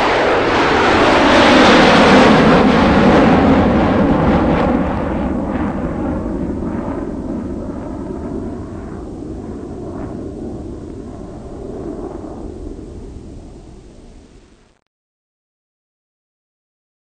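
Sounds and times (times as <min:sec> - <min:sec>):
helicopters flying overhead: 0:00.0 - 0:14.3.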